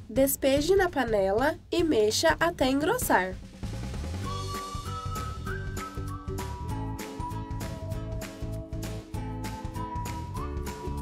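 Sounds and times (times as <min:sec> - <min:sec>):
upbeat background music: 0:00.0 - 0:11.0.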